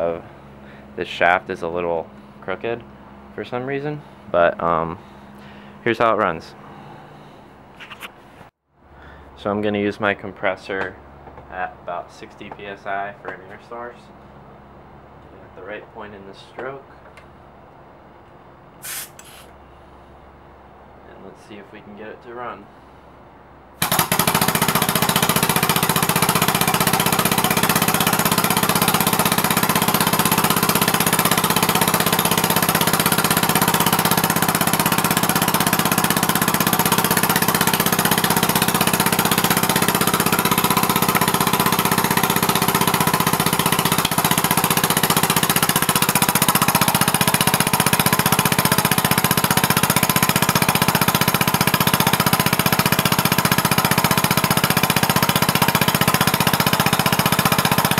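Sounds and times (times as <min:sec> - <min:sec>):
air-powered engine pulsing: 0:00.2 - 0:01.0, 0:03.9 - 0:05.9, 0:06.5 - 0:09.4, 0:18.8 - 0:20.2.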